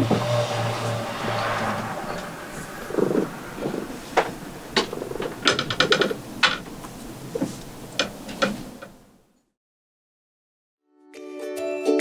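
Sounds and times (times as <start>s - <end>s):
rattling run of clicks: 4.2s - 7.0s.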